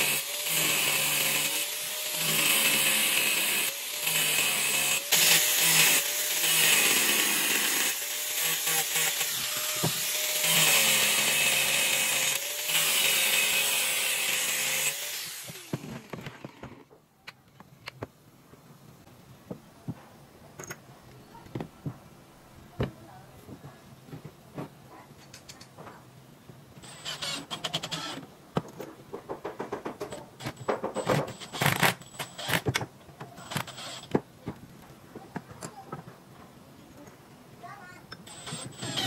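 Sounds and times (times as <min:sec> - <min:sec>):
grinder winding down: 0:00.0 - 0:16.2
angle grinder grinding: 0:00.0 - 0:16.8, 0:26.8 - 0:28.2, 0:38.2 - 0:39.0
cordless drill driving screws: 0:26.8 - 0:28.2, 0:31.3 - 0:32.8, 0:33.4 - 0:34.2, 0:38.3 - 0:39.0.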